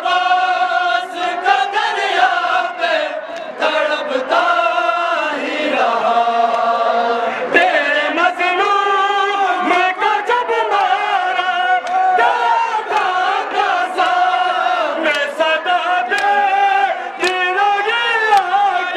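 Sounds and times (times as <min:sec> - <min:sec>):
men chanting in unison: 0:00.0 - 0:18.9
hands slapping chests: 0:12.9 - 0:13.2, 0:15.0 - 0:15.4, 0:16.1 - 0:16.4, 0:17.2 - 0:17.5, 0:18.3 - 0:18.6.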